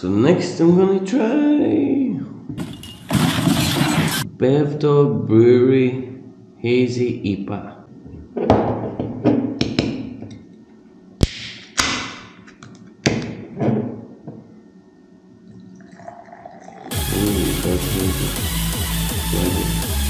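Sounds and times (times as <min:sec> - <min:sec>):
beer pouring with fizzing hiss: 0:15.6 - 0:17.0
loud electronic music: 0:16.9 - 0:20.0.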